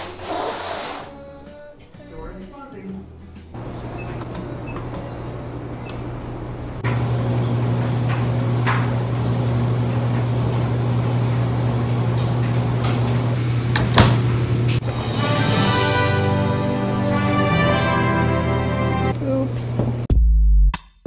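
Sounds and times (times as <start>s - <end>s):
laundry machines humming: 3.4s - 20.1s
washer door knocking shut: 13.8s - 14.2s.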